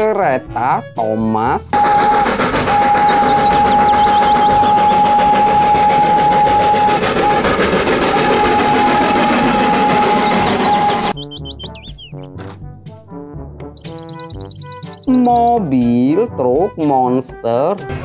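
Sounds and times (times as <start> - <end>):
locomotive whistle blasts: 1.8 - 11.2
train rumbling and rattling: 1.8 - 11.2.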